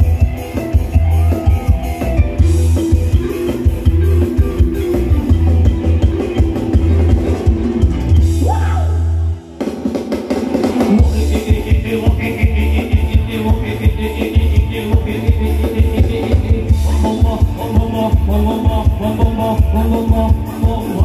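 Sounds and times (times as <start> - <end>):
bass notes: 0.0 - 9.7, 10.8 - 21.0
drum kit beat: 0.0 - 21.0
live band music: 0.0 - 21.0.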